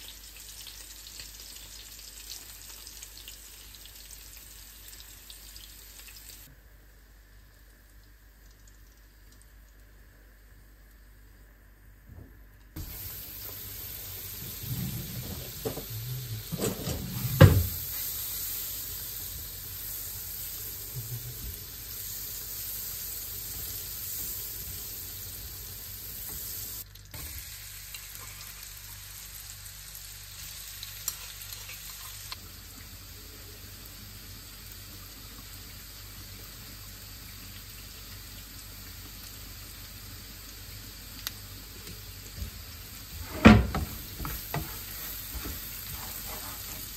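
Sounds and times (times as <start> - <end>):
butter sizzling in a frying pan: 0.0 - 6.5, 12.8 - 46.9
aromatics frying: 0.0 - 46.9
loud knocks: 43.3 - 44.0
wooden spatula stirring: 43.7 - 46.9.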